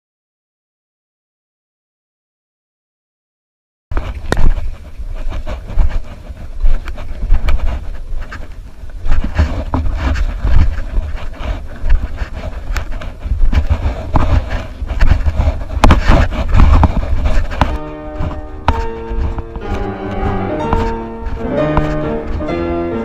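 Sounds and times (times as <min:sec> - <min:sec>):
camera handling rumble: 0:03.9 - 0:22.1
camera knocking on rock: 0:15.8 - 0:17.8.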